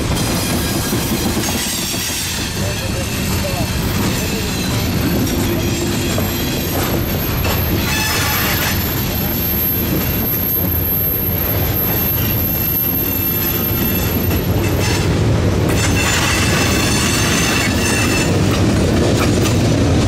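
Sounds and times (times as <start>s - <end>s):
train rumble: 0.0s - 20.0s
high wheel squeal: 0.4s - 18.6s.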